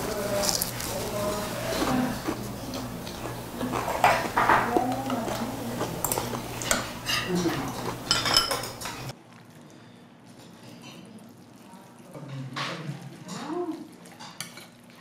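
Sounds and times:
utensils clinking on dishes: 0.0s - 9.1s.

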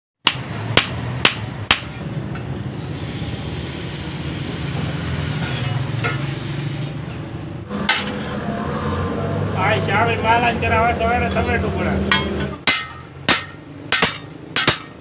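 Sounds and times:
hot metal hissing in water: 2.8s - 7.0s.

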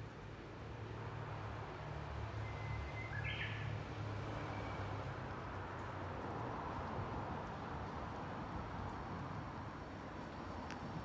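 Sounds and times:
bush warbler singing: 2.5s - 3.7s.

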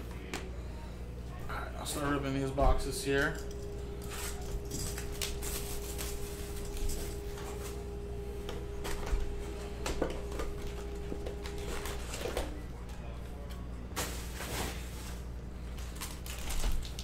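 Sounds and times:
plastic shrink-wrap crinkling and tearing: 4.0s - 7.3s, 14.0s - 17.0s.

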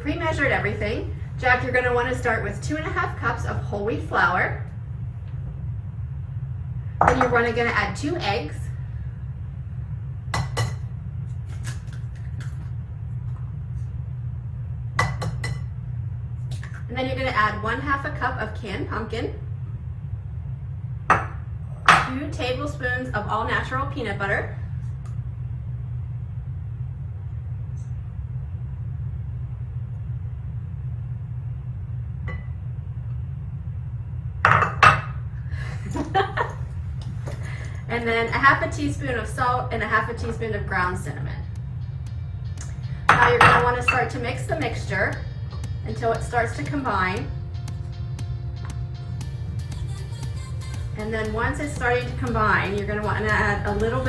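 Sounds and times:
steady low hum: 0.0s - 54.0s
eggs tapping on bowl: 7.0s - 7.3s.

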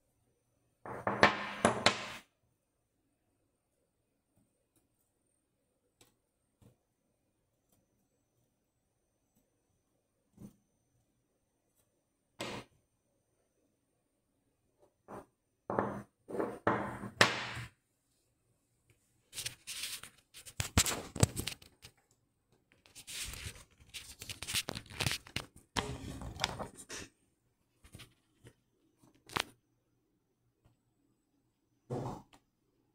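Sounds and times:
rubbing and scuffing handling noise: 19.2s - 21.8s, 22.8s - 26.9s.

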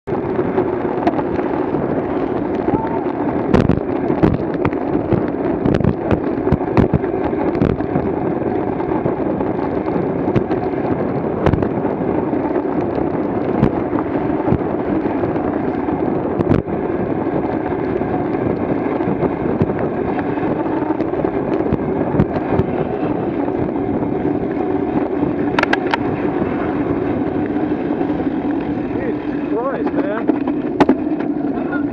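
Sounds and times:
wind rushing over microphone: 0.0s - 31.9s.

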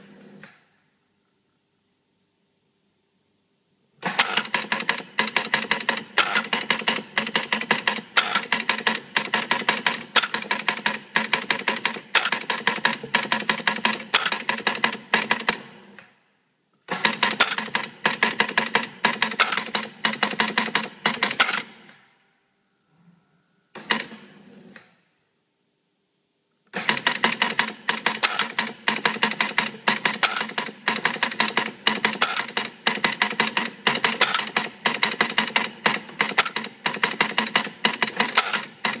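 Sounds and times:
pinball relays clicking: 4.1s - 15.6s, 17.0s - 21.7s, 26.8s - 39.0s.

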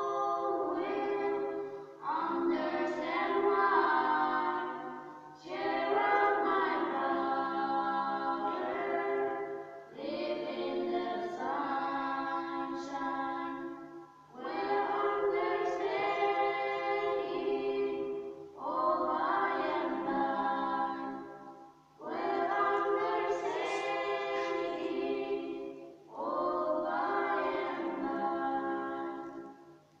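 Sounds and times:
girls singing unaccompanied: 0.0s - 30.0s.

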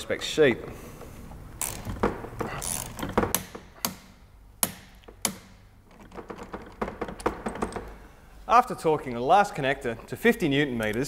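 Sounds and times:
ratchet clicking: 1.6s - 2.0s, 2.6s - 5.5s
tools clicking and knocking: 1.6s - 8.0s.

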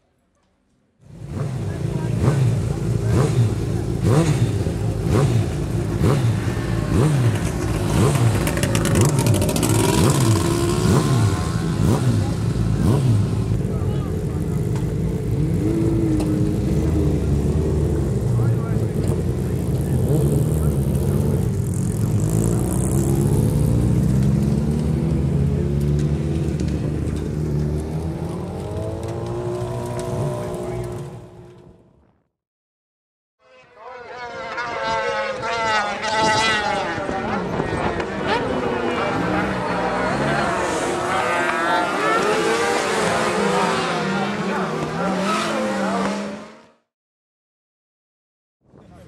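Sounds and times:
racing engines revving: 1.1s - 31.8s, 33.8s - 46.9s.

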